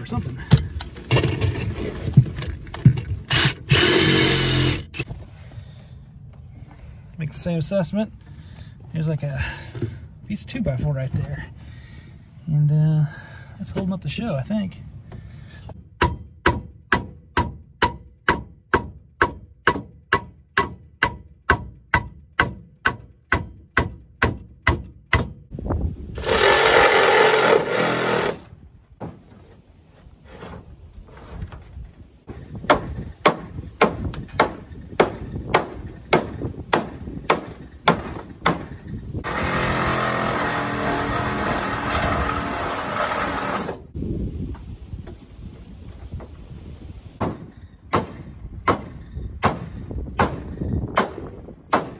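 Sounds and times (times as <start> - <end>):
power tool running: 3.3 - 5.0, 26.2 - 28.5, 39.2 - 43.9.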